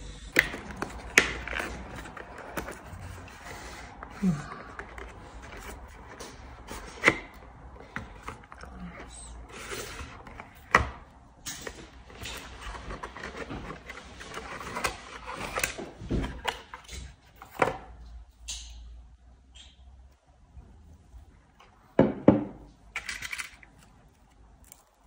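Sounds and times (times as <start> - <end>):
cardboard rubbing and rustling: 0.3 - 10.9, 11.8 - 16.8.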